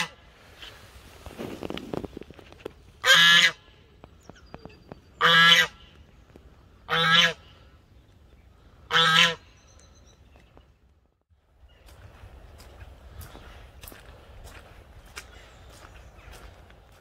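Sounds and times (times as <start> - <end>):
goose honking: 0.0 - 0.2, 3.0 - 3.7, 5.2 - 5.9, 6.9 - 7.5, 8.9 - 9.5.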